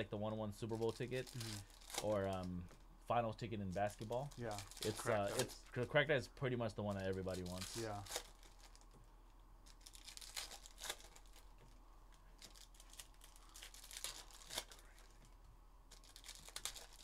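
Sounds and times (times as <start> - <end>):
foil wrappers crinkling and tearing: 0.6 - 2.6, 3.8 - 5.6, 6.8 - 8.9, 9.6 - 11.5, 12.4 - 15.2, 15.9 - 17.0.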